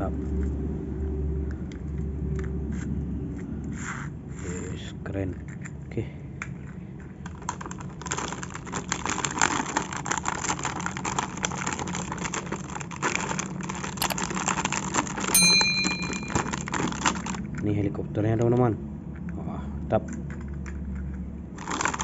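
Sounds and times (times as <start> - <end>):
plastic packaging crinkling: 7.3 - 15.3, 16.4 - 17.5, 21.6 - 22.0
bell-like chime: 15.4 - 16.7.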